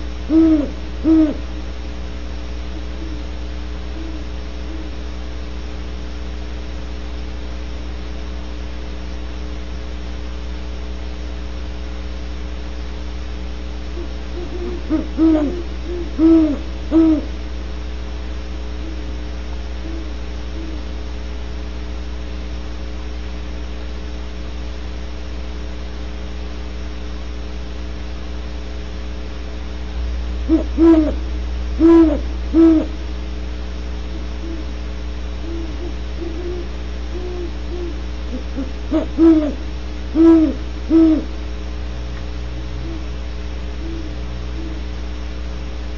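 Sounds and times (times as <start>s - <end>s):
owl hooting: 0.0s - 1.6s, 2.7s - 5.1s, 13.9s - 17.4s, 18.8s - 19.2s, 19.8s - 21.0s, 30.4s - 31.2s, 31.8s - 33.0s, 34.1s - 34.8s, 35.4s - 41.4s, 42.6s - 44.9s
electrical hum: 0.0s - 45.9s.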